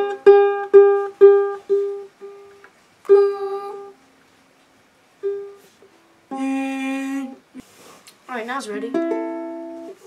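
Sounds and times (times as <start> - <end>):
ukulele strings plucked: 0.0 - 3.9, 8.9 - 10.0.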